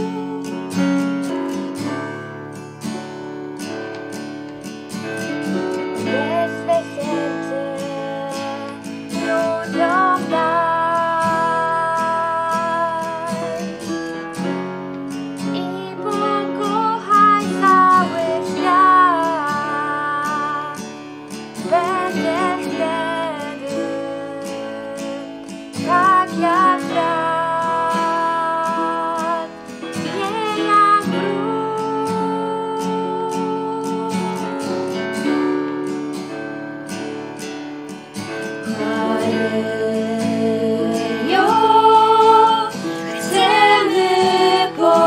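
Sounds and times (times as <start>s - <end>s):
acoustic guitar: 0.0s - 45.0s
girls singing: 6.1s - 13.7s, 15.6s - 20.7s, 21.7s - 25.1s, 25.8s - 33.3s, 38.6s - 45.0s.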